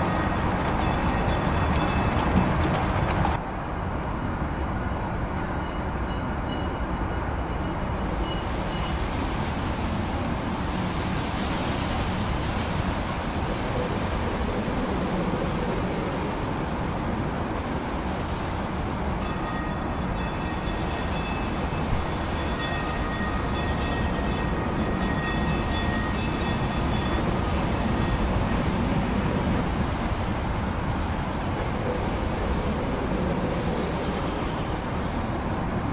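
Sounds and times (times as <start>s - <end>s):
streetcar rumbling on rails: 0.0s - 35.9s.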